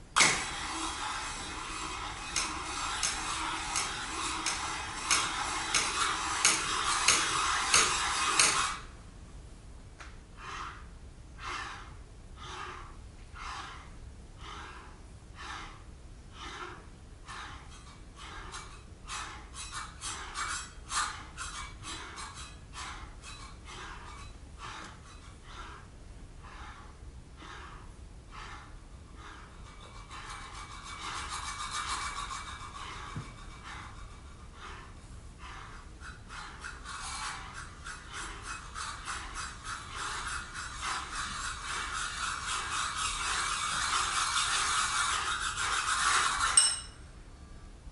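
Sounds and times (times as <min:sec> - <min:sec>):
service bells scraped: 0:46.5 - 0:47.0
faint high ring: 0:46.6 - 0:47.1.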